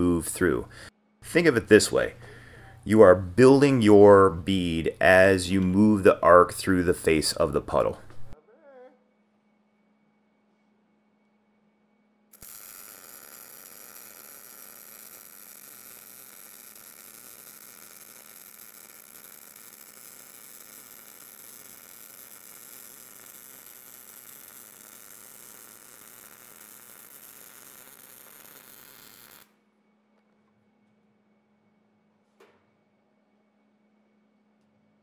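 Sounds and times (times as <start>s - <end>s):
welding arc buzzing: 12.4s - 29.6s.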